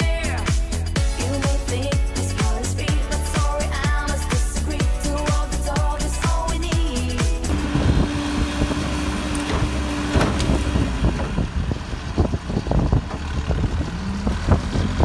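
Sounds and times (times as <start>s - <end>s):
diesel engine running: 3.1s - 15.0s
steady whine: 7.5s - 11.2s
manure knocking and thudding: 7.5s - 11.6s.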